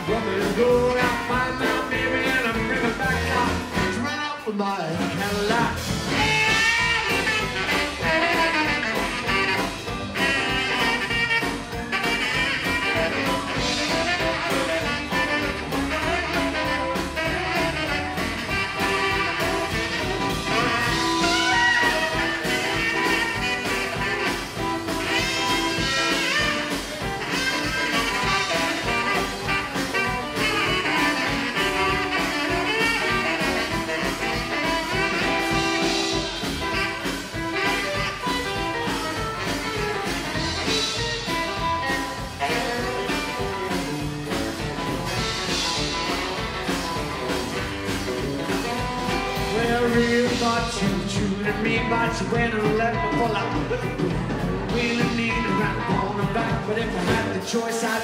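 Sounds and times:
rockabilly band playing: 0.0 - 58.0
saxophone solo: 6.0 - 50.8.

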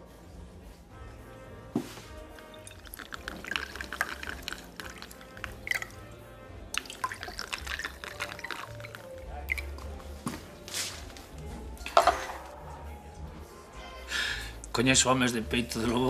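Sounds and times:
background music: 0.0 - 16.0
liquid pouring into a glass: 2.4 - 10.0.

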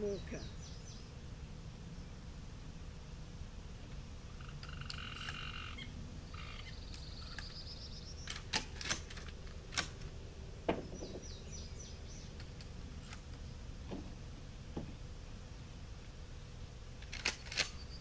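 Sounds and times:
sharp clicks: 8.2 - 10.1, 17.0 - 17.8.

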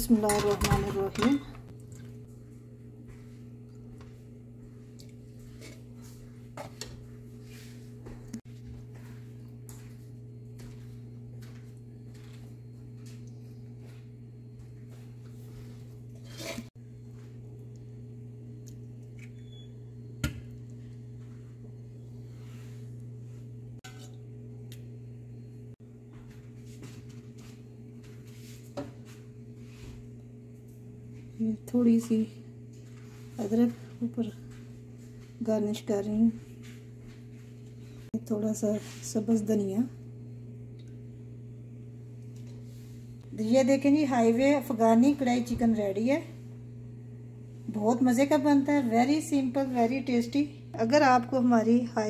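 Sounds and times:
low hum: 0.0 - 38.2.

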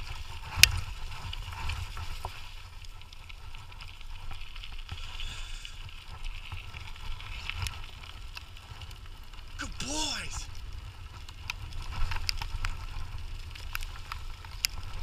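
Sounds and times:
small clicks and rattles: 11.1 - 15.0.

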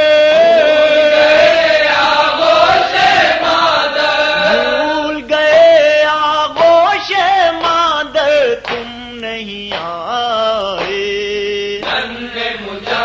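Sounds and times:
man chanting a lament: 0.0 - 1.8, 4.3 - 12.6.

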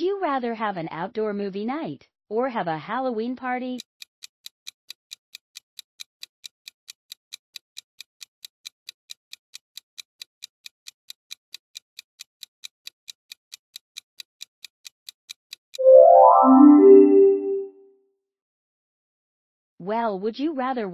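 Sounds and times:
countdown timer ticking: 15.8 - 17.7.

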